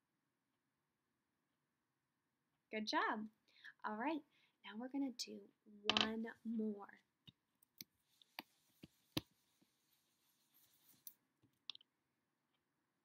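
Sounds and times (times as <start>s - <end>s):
marker taps and clicks: 5.9s - 6.1s.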